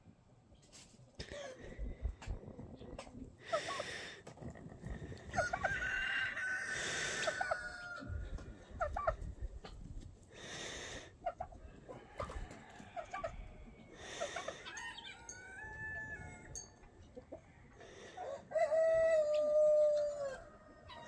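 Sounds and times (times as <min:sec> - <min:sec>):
rooster clucking: 0:05.2 - 0:09.8
rooster crowing: 0:05.4 - 0:08.3, 0:14.3 - 0:16.8, 0:17.7 - 0:21.0.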